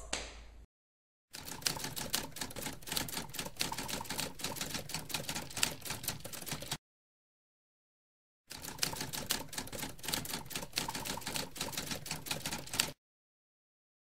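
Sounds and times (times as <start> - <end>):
typewriter keys clattering: 1.4 - 6.8, 8.5 - 13.0.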